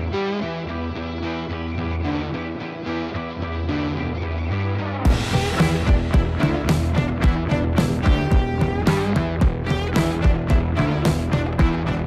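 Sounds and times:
music with drum beat and guitar: 0:05.0 - 0:12.0.

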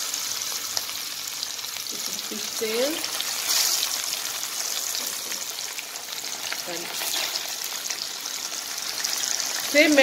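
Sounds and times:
fish sizzling in hot oil: 0:00.0 - 0:10.0.

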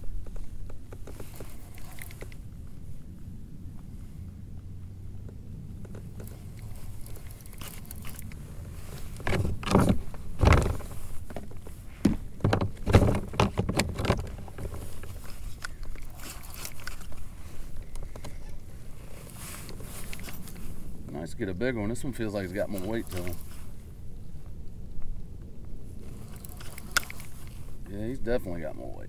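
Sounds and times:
knocks and scrapes against kayak: 0:00.0 - 0:02.4, 0:05.8 - 0:21.1, 0:22.3 - 0:23.8, 0:26.0 - 0:27.9
low steady rumble: 0:00.0 - 0:29.0.

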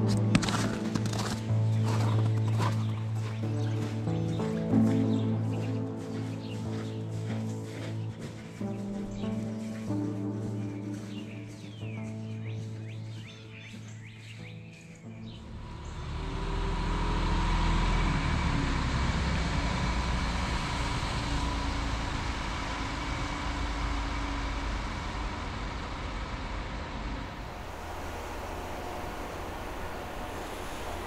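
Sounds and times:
road noise: 0:00.0 - 0:31.0
truck engine rumbling: 0:15.3 - 0:31.0.

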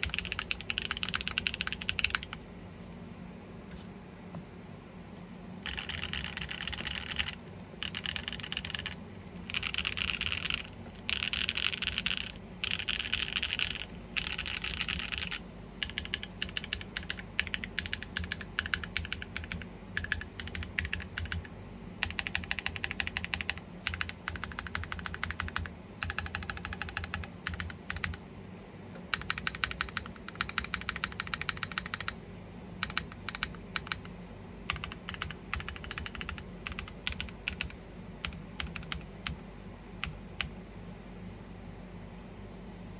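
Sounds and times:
typing on mechanical keyboard: 0:00.0 - 0:02.4, 0:05.6 - 0:28.2, 0:29.0 - 0:32.2, 0:32.8 - 0:34.1, 0:34.7 - 0:39.4, 0:40.0 - 0:40.6.

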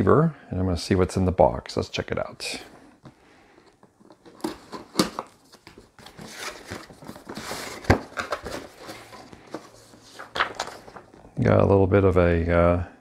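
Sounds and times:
cardboard packing scraping and rustling: 0:04.0 - 0:11.1.

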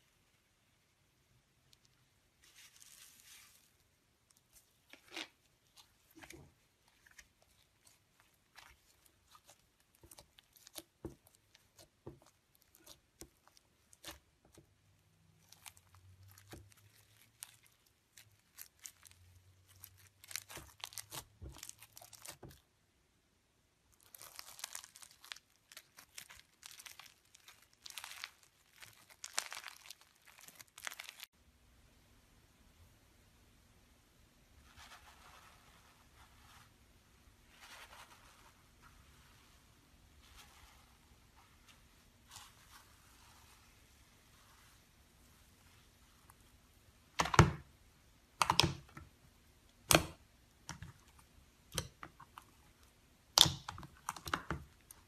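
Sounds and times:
slime crackling and squishing: 0:01.5 - 0:22.7, 0:23.8 - 0:31.3, 0:48.3 - 0:55.0.

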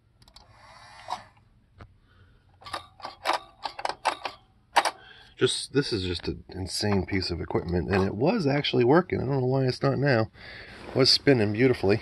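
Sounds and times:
mechanism clicks and rattles: 0:02.6 - 0:05.0.

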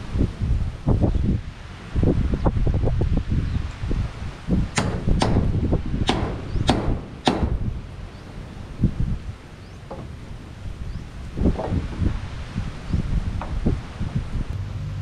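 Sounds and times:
wind rumble on microphone: 0:00.0 - 0:15.0
hammer striking tin sheet: 0:04.8 - 0:07.7.

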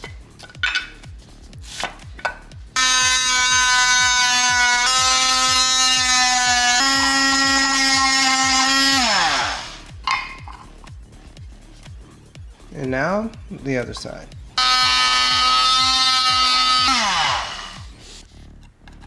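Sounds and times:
multi-tool buzzing cutting plastic: 0:02.8 - 0:09.9, 0:14.6 - 0:17.9.

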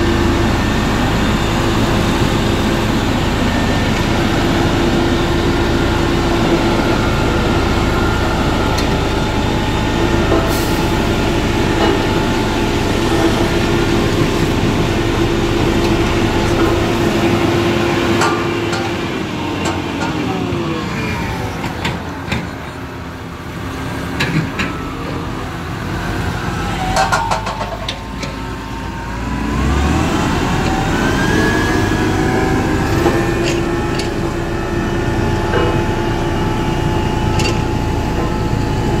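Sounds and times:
diesel engine running: 0:00.0 - 0:39.0.

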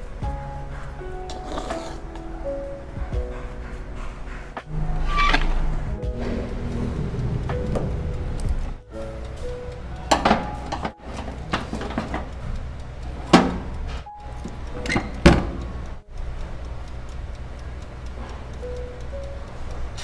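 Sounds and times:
background music: 0:00.0 - 0:17.1
oven glass door shutting: 0:10.1 - 0:12.3, 0:14.8 - 0:15.8
oven knob clicking: 0:14.5 - 0:15.9.

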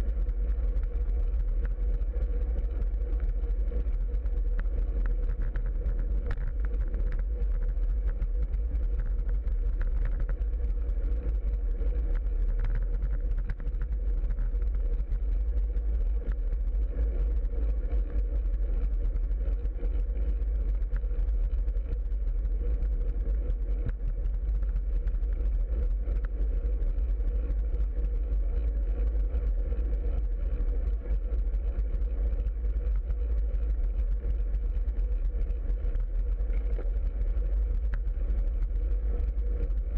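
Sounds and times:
bicycle road vibration: 0:00.0 - 0:39.9
faint steady hum: 0:00.0 - 0:39.9
wind rumble: 0:00.0 - 0:39.9.

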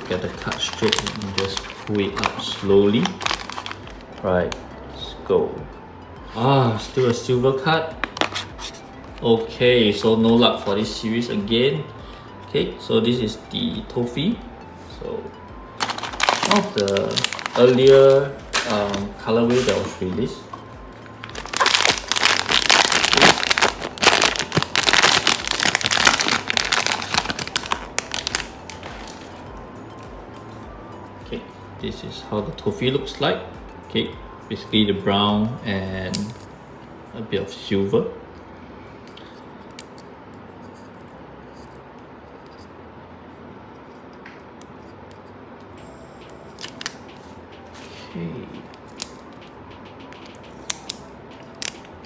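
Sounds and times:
plastic packaging crinkling: 0:00.0 - 0:03.9, 0:15.8 - 0:20.1, 0:21.2 - 0:29.3.

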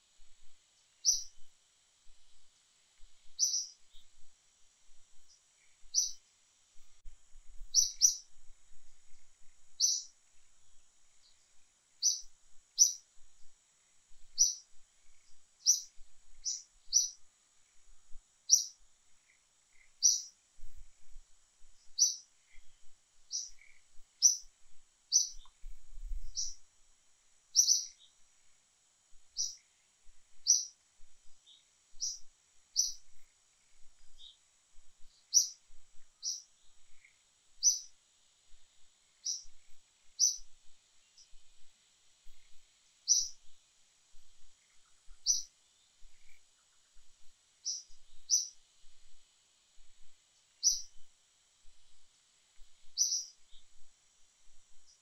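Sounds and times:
bird chirping: 0:01.0 - 0:01.5, 0:03.2 - 0:04.3, 0:05.1 - 0:06.2, 0:07.6 - 0:08.4, 0:09.1 - 0:10.2, 0:11.1 - 0:13.1, 0:14.3 - 0:17.9, 0:18.5 - 0:20.8, 0:21.8 - 0:26.6, 0:27.5 - 0:28.2, 0:29.3 - 0:29.7, 0:30.3 - 0:34.4, 0:35.0 - 0:38.0, 0:39.2 - 0:41.4, 0:42.3 - 0:43.6, 0:44.4 - 0:48.6, 0:50.6 - 0:51.0, 0:52.8 - 0:53.9.

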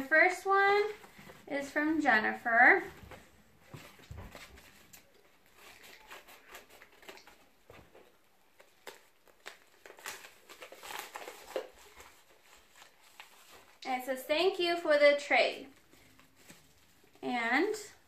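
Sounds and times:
paper envelope crinkling: 0:04.0 - 0:13.8.

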